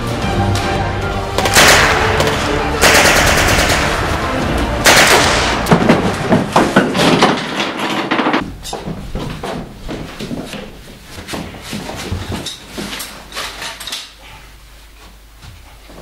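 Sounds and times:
music: 0.0s - 6.9s
rapid gunfire: 1.4s - 4.2s, 4.8s - 6.0s
gunshots: 1.4s - 6.4s.

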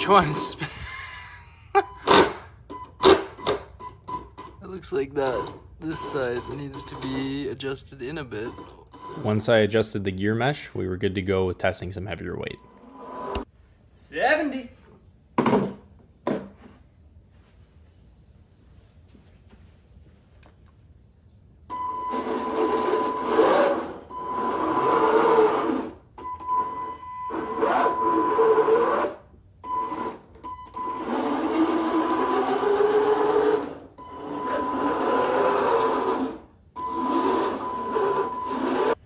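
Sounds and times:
electric motors and gears whining: 21.8s - 39.0s.

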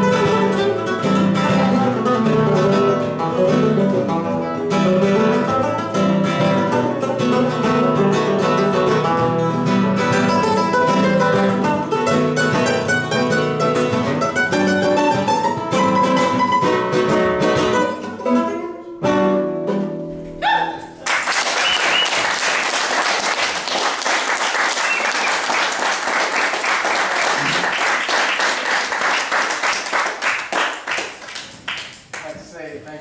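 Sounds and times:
nylon-string guitars playing: 0.0s - 21.0s
audience applauding: 21.0s - 32.3s.

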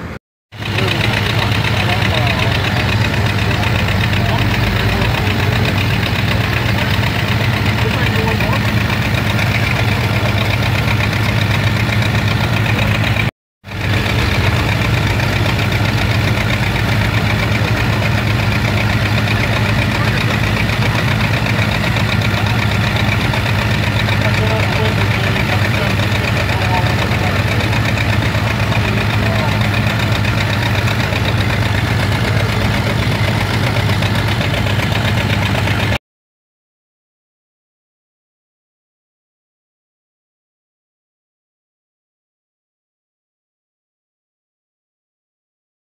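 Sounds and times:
tractor engines and threshing machine: 0.0s - 36.0s.

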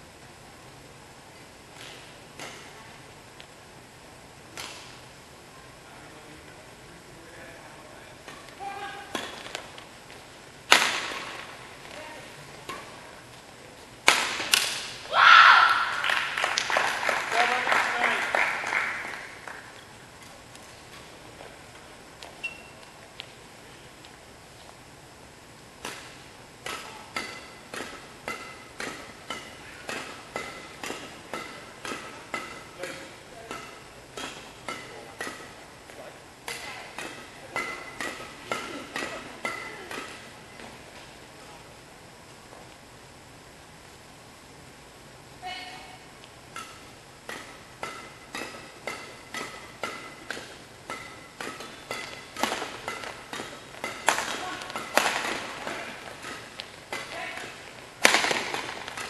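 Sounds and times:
racquets striking shuttlecock: 1.7s - 2.9s, 4.5s - 5.0s, 8.2s - 13.1s, 14.0s - 18.2s, 25.8s - 41.2s, 46.2s - 59.0s.

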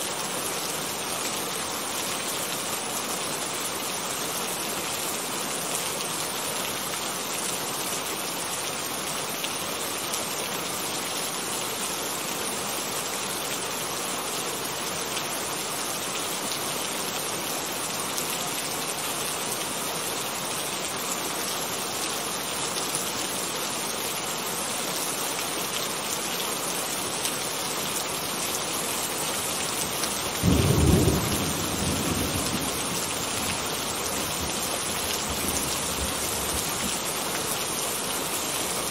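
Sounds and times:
heavy rain: 0.0s - 38.9s
thunder clap rumbling: 30.4s - 33.4s.

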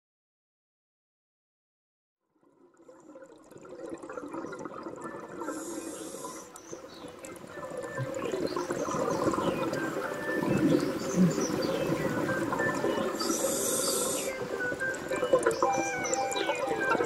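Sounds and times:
underwater bubbling: 2.4s - 17.0s.

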